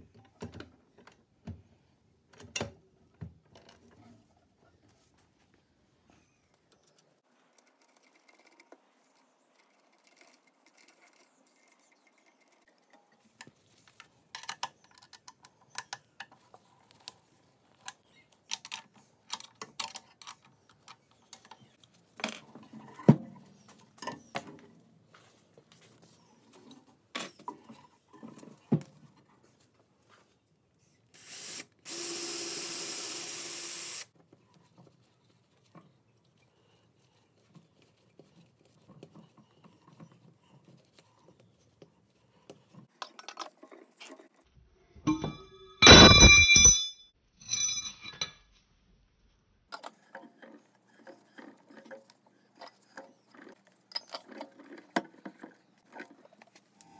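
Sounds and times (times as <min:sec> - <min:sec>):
power drill running: 0:31.2 - 0:34.1.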